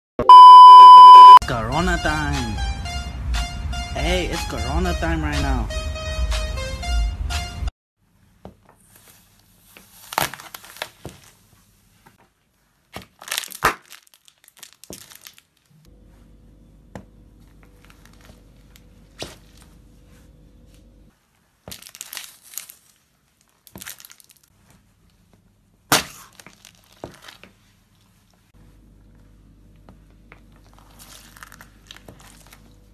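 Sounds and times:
eggs cracking under shoe: 0:13.0 - 0:15.6, 0:23.5 - 0:24.5, 0:25.9 - 0:27.5.

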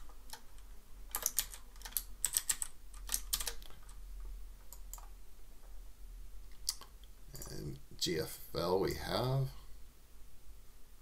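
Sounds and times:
keyboard keystroke clicks: 0:00.3 - 0:03.9.

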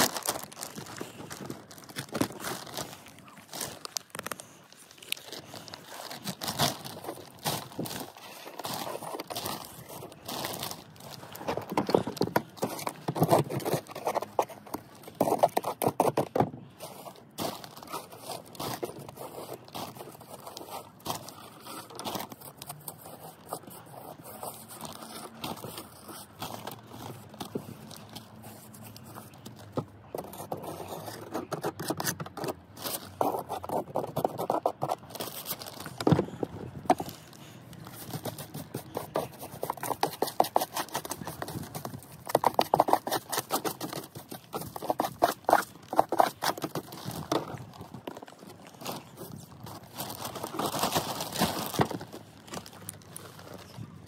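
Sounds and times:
hand tool scraping mortar: 0:38.0 - 0:49.9.

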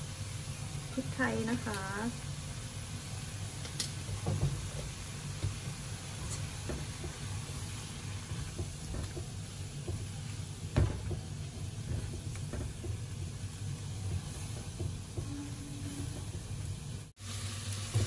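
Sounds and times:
meat sizzling in a frying pan: 0:00.0 - 0:18.0
spatula knocking and scraping pan: 0:03.6 - 0:17.1.

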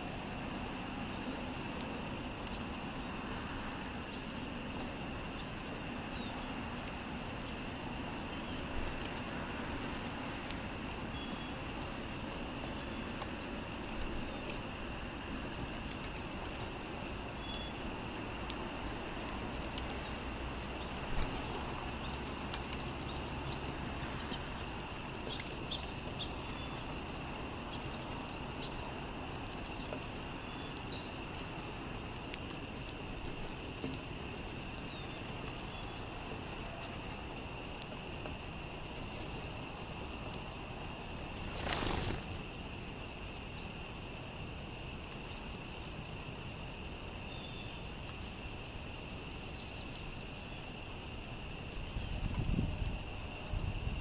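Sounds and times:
sparrows chirping: 0:00.0 - 0:37.6, 0:43.2 - 0:54.0
rush of wingbeats: 0:41.3 - 0:42.4.

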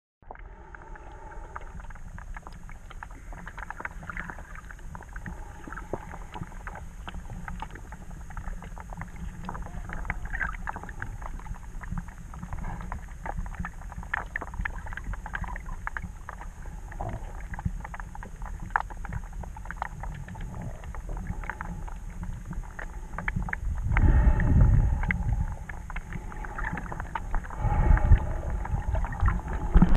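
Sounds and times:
muffled underwater rumble: 0:00.2 - 0:29.9.

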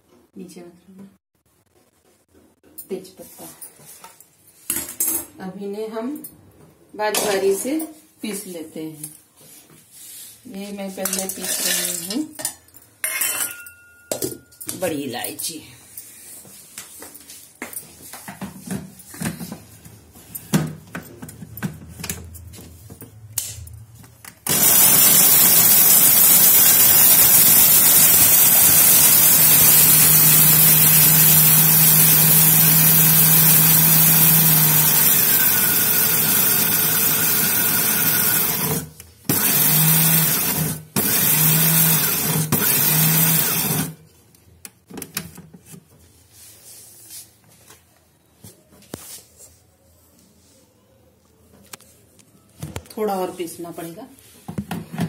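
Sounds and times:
mixer grinder motor grinding: 0:24.5 - 0:44.0.

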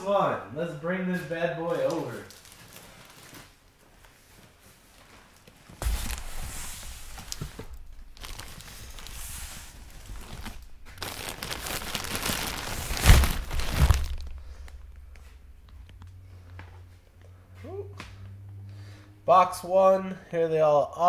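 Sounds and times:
packaging rustling and crinkling: 0:01.6 - 0:16.1
box bumps: 0:05.8 - 0:15.9.

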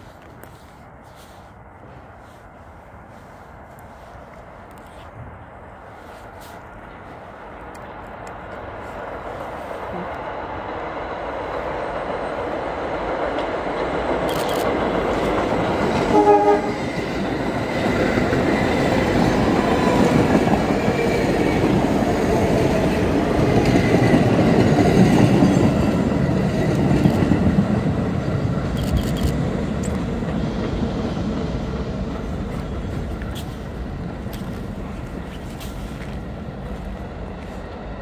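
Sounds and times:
train wheels rumbling on rails: 0:00.0 - 0:38.0
train horn blast: 0:16.0 - 0:16.9.

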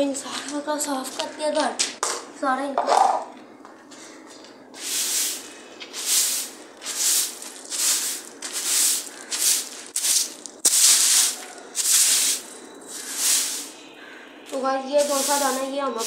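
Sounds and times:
stick broom sweeping concrete: 0:04.8 - 0:13.8, 0:14.5 - 0:16.0.

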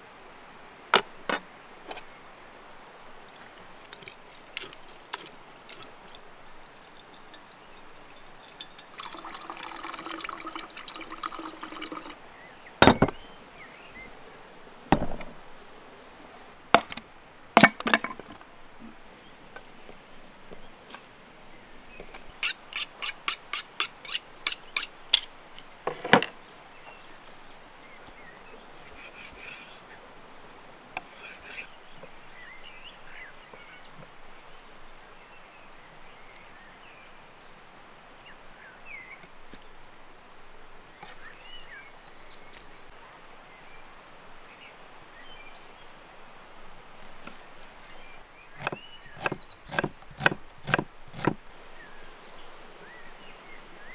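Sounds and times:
birdsong chirps: 0:05.8 - 0:14.7, 0:31.0 - 0:46.0, 0:47.8 - 0:53.9.

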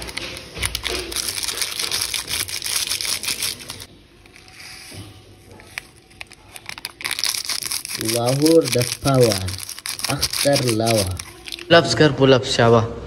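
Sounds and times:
plastic sachet crinkling: 0:00.0 - 0:04.6, 0:05.5 - 0:11.8.

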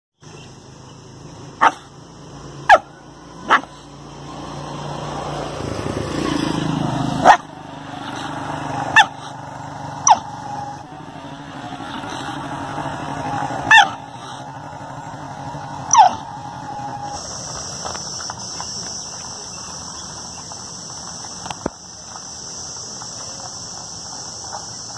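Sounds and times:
dog barking: 0:01.6 - 0:01.9, 0:02.6 - 0:03.9, 0:07.2 - 0:07.5, 0:08.9 - 0:09.4, 0:10.0 - 0:10.3, 0:13.7 - 0:14.4, 0:15.9 - 0:16.3.

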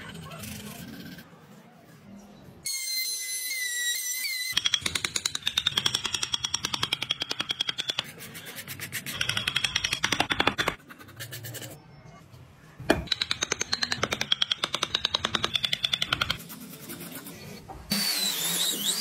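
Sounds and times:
high wavering squeak: 0:02.6 - 0:04.6.

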